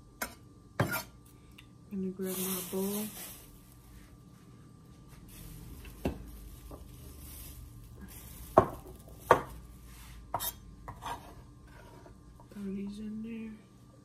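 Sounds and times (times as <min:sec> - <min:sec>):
glass bowl set down on countertop: 0:08.6 - 0:09.5.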